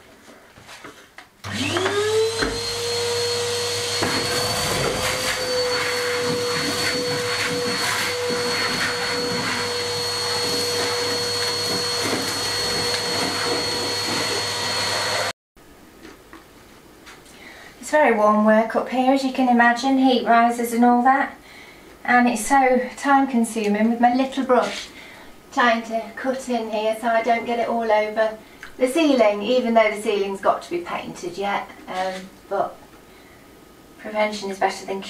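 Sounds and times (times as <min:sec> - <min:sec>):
vacuum cleaner motor whine: 0:01.4 - 0:15.3.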